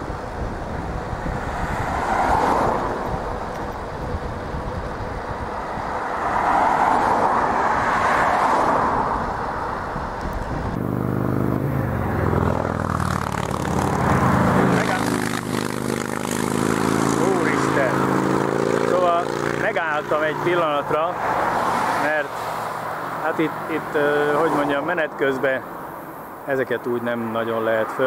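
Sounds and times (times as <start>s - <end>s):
cars passing: 0.0s - 28.0s
engine drone: 10.4s - 21.1s.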